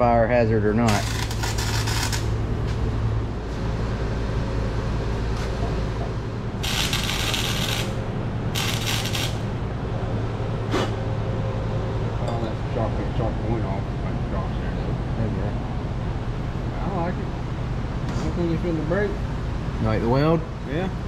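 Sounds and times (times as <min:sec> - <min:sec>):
steady low hum: 0:00.0 - 0:21.0
arc welder crackling: 0:00.8 - 0:02.8, 0:06.5 - 0:09.6.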